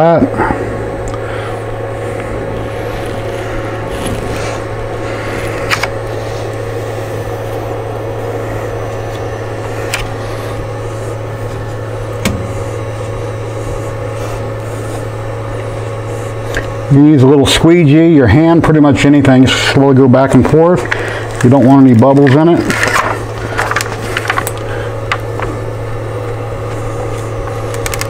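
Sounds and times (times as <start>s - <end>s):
low machine hum: 0.0s - 28.0s
paper backing peeling crackles: 20.4s - 25.5s.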